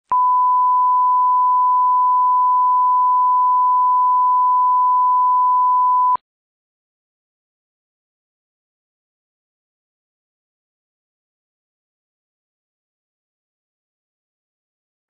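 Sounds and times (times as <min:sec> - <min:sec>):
steady pure test tone beep: 0:00.1 - 0:06.2.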